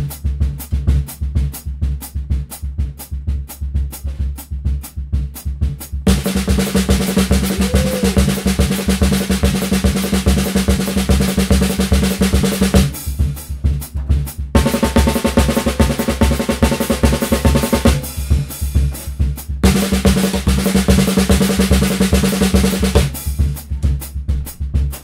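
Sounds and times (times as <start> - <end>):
snare drum fast strokes: 6.1 - 25.0.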